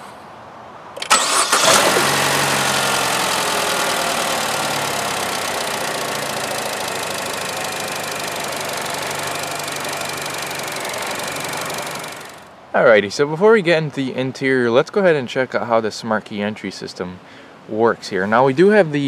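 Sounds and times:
car engine starting and idling: 1.0s - 12.6s.

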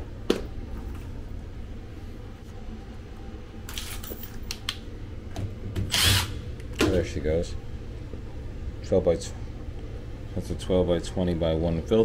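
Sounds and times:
air handler blower humming: 0.0s - 12.0s
tools rustling and clattering: 3.7s - 4.5s.

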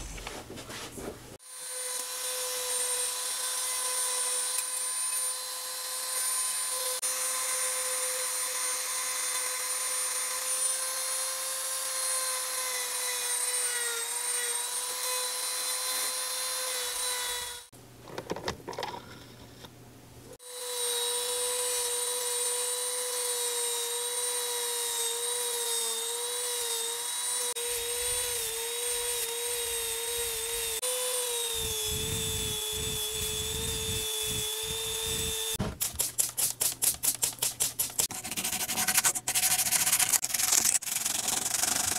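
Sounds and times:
rotary tool whining: 20.4s - 36.4s.

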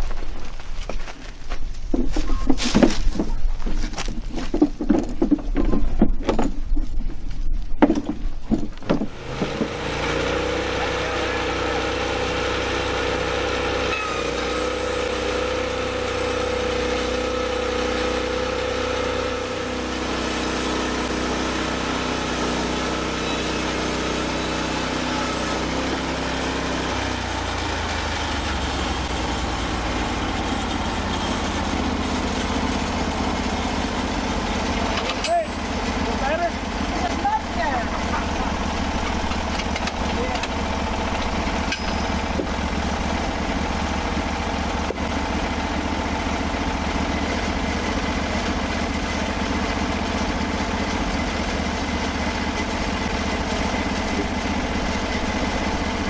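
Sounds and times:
knocks and clatter: 0.0s - 9.8s
sawmill engine running: 8.8s - 56.0s
band saw cutting log: 8.9s - 56.0s.

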